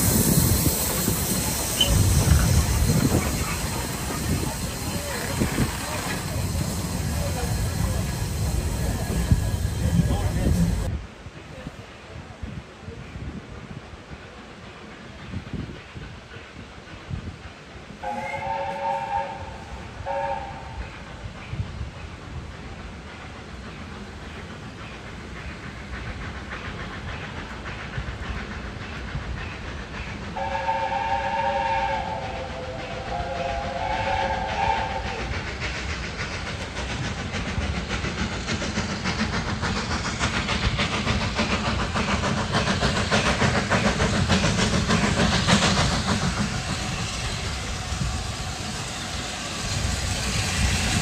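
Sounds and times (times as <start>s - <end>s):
steam rumble and hiss: 0.0s - 51.0s
steam locomotive whistle: 18.0s - 20.8s, 30.4s - 35.3s.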